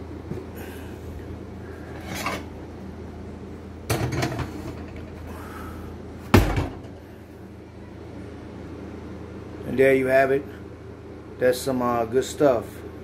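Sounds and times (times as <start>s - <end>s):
skillet clunk and rattle: 3.9s - 5.0s, 6.3s - 7.0s
oven door thump: 6.3s - 6.9s.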